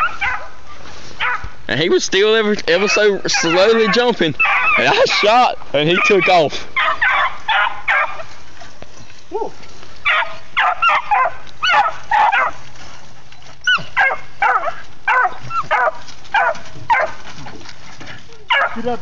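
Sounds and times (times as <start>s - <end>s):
dogs yipping and barking: 0.0s - 0.6s, 1.2s - 1.5s, 2.7s - 8.4s, 10.0s - 12.7s, 13.6s - 17.5s, 18.5s - 18.9s.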